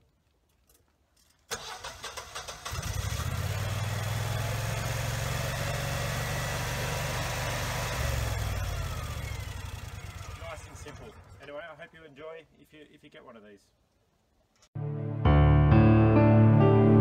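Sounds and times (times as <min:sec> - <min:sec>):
starter cranking engine: 0:01.5 - 0:04.2, 0:07.4 - 0:11.5
generator engine running: 0:02.7 - 0:11.4.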